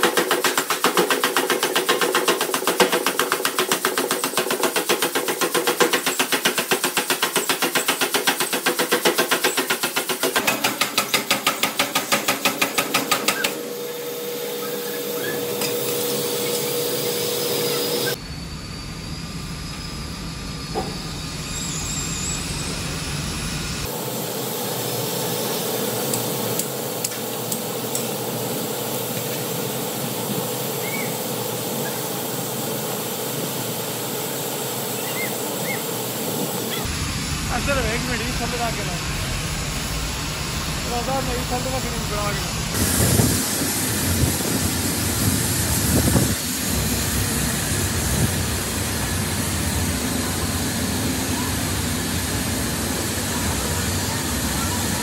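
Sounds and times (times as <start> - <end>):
power hammer on metal: 0.0 - 18.2
workshop machinery hiss and hum: 0.0 - 55.0.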